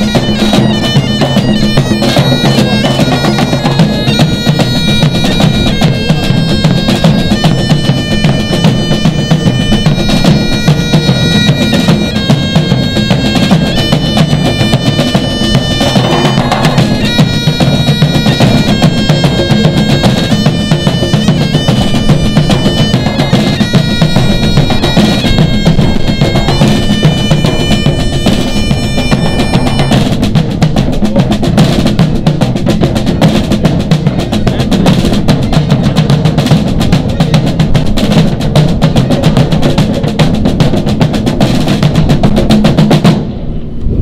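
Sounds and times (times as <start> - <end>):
bagpipes playing a melody: 0.0 - 30.4
drum band beat: 0.0 - 43.4.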